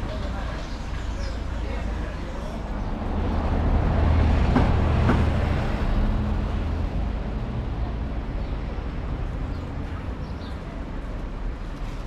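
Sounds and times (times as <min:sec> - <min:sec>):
vehicle passing close by: 0:02.9 - 0:07.9.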